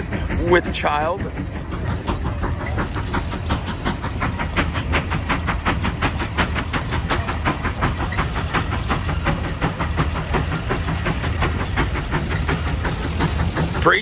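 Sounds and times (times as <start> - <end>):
low engine rumble: 0.0 - 14.0
steam engine exhaust chuffing: 0.0 - 14.0.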